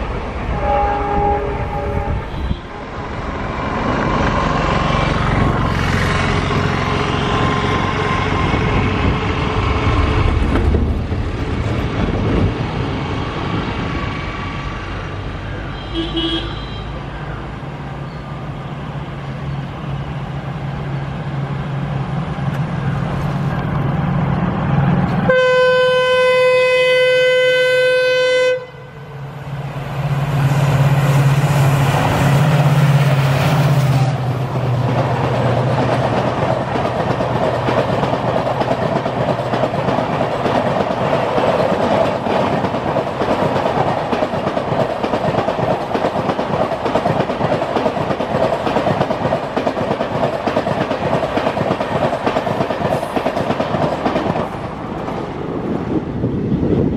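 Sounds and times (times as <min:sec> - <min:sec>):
diesel locomotive engine: 0:00.0 - 0:56.9
train horn blast: 0:00.5 - 0:03.0, 0:15.7 - 0:17.0, 0:25.2 - 0:29.2
train wheels clickety-clack: 0:03.6 - 0:13.8, 0:30.3 - 0:55.4.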